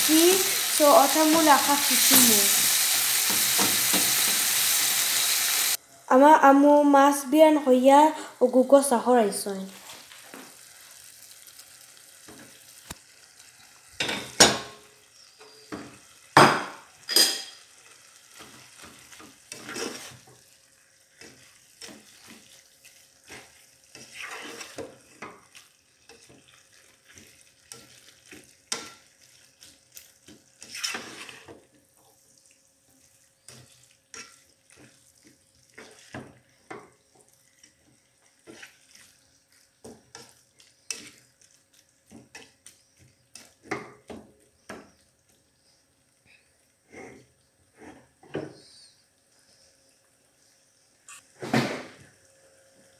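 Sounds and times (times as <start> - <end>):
faint frying sizzle: 0.0 - 52.9
spatula scraping metal pot: 19.4 - 20.3, 23.3 - 25.4, 30.6 - 31.6.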